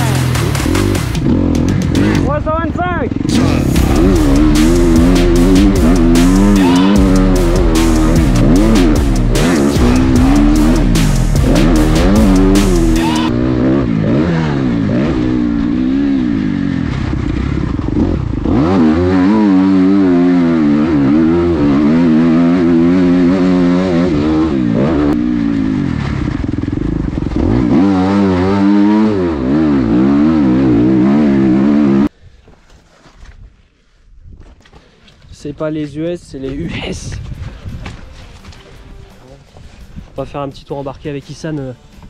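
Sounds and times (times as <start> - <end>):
motocross bike engine revving: 0.0 - 32.1.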